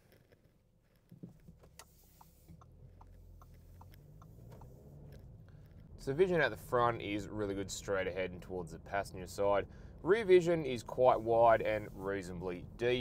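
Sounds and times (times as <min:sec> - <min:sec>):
car engine and tyres humming: 0:00.0 - 0:13.0
turn signal ticking: 0:00.2 - 0:13.0.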